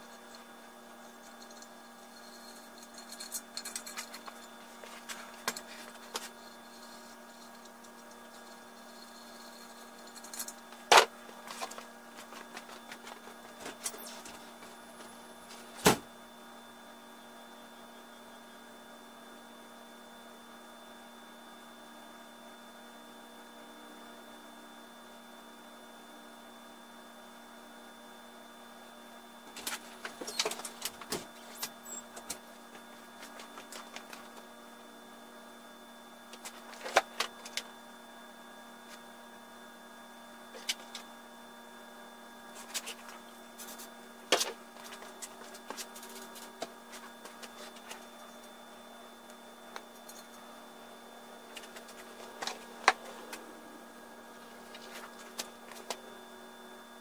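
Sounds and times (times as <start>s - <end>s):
electrical hum: 0.0s - 57.0s
clicks and handling noises: 1.0s - 8.6s, 9.4s - 15.7s, 29.5s - 34.5s, 36.3s - 37.7s, 51.5s - 53.5s.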